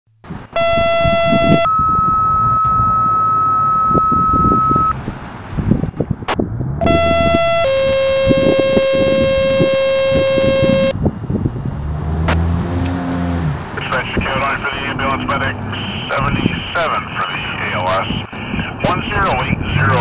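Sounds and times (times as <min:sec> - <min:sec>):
two-tone radio page tones: 0:00.6 - 0:04.9, 0:06.8 - 0:10.9, 0:13.8 - 0:20.0.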